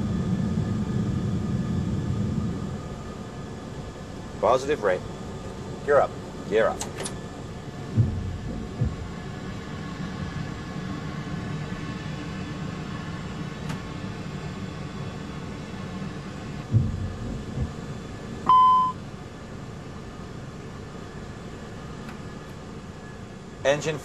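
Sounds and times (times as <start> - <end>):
steady low rumble: 0.0 - 24.0
dull thumps: 7.9 - 9.2, 16.7 - 17.9.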